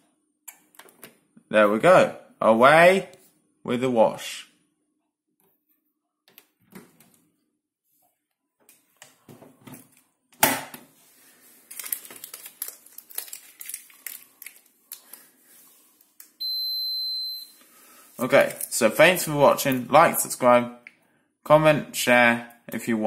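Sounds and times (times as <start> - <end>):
high electronic beep: 16.4 - 17.6.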